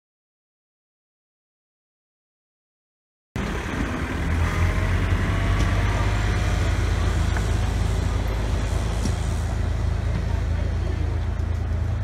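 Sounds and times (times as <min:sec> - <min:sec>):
engine humming: 0:03.4 - 0:12.0.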